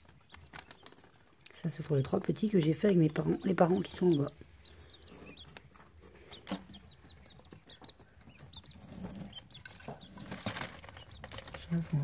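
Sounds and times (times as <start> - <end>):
quail chicks peeping: 0.0 - 12.0.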